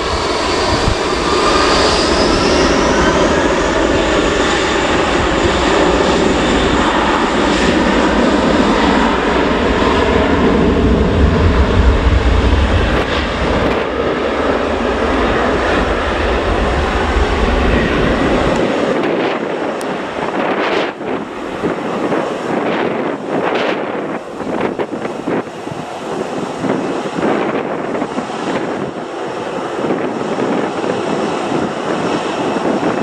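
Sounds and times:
jet engines roaring: 0:00.0 - 0:33.0.

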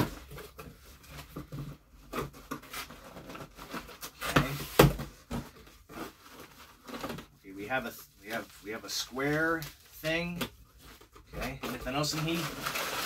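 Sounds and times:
packing paper rustling: 0:00.0 - 0:13.0
thumps on cardboard box: 0:04.2 - 0:05.6.

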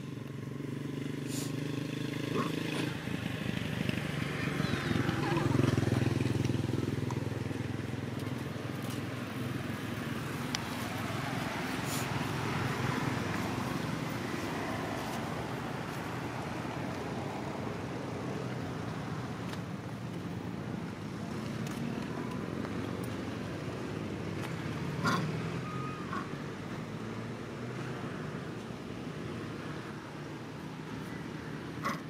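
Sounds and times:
distant traffic rumble: 0:00.0 - 0:32.0.

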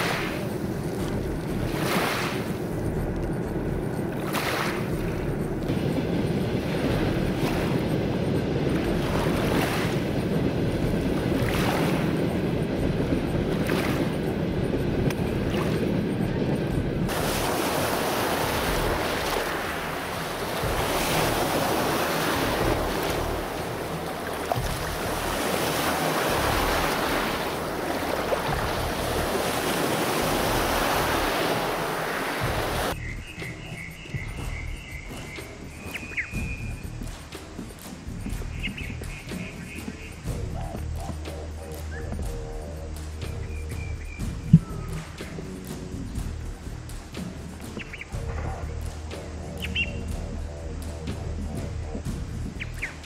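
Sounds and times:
small waves on pebble shore: 0:00.0 - 0:01.0, 0:01.6 - 0:02.7, 0:05.7 - 0:12.4, 0:17.0 - 0:33.0
surf hissing on sandy shore: 0:00.0 - 0:43.8, 0:44.7 - 0:53.0.

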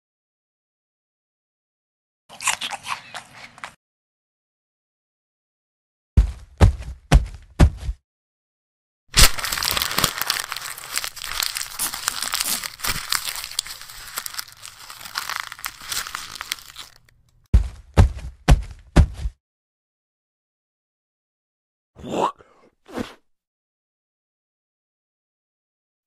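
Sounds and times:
dense crinkling crackling: 0:09.2 - 0:17.5.

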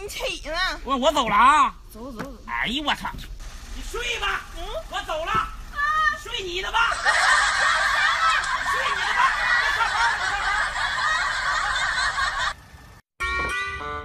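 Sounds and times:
laugh track: 0:06.6 - 0:12.6.

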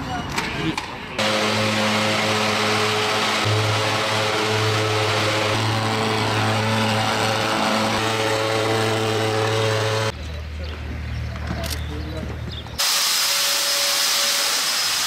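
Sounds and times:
fogging machine engine drone: 0:01.2 - 0:10.2.

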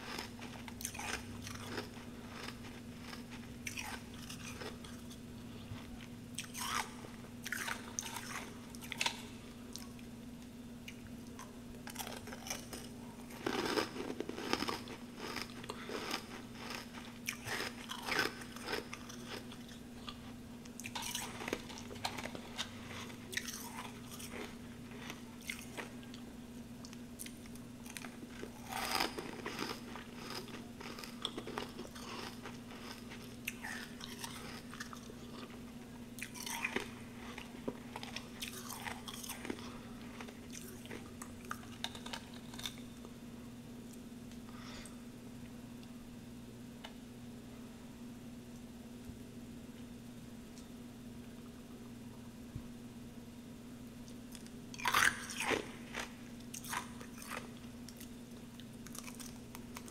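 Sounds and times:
crunching and chewing ice: 0:00.0 - 0:10.0, 0:10.9 - 0:26.2, 0:27.2 - 0:42.9, 0:54.3 - 0:59.9
steady low hum: 0:00.0 - 0:59.9.

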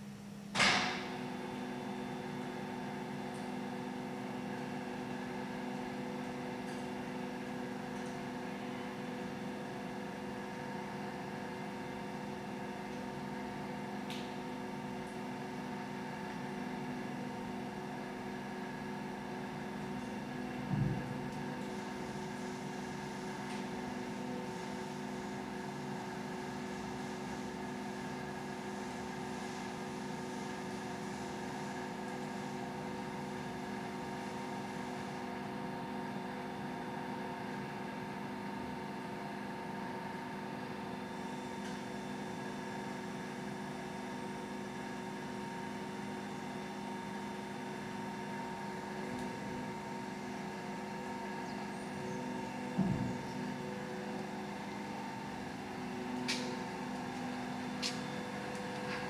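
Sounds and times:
electric motor and gearing humming: 0:00.0 - 0:59.0.

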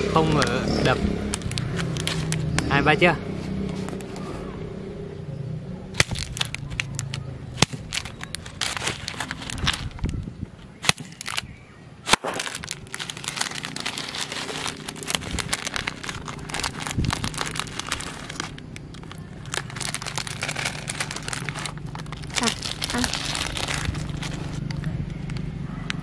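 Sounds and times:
plastic packet crinkling: 0:00.4 - 0:02.6, 0:06.0 - 0:10.2, 0:10.8 - 0:11.5, 0:12.1 - 0:25.4
plastic packet snapping: 0:01.2 - 0:02.7, 0:06.0 - 0:10.1, 0:10.8 - 0:25.4.

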